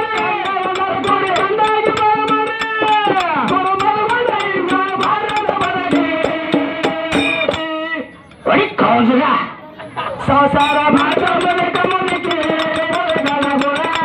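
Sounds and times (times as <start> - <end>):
hand drum strokes: 0.0 - 7.7, 10.5 - 14.0
man singing folk song: 0.0 - 8.0, 10.3 - 14.0.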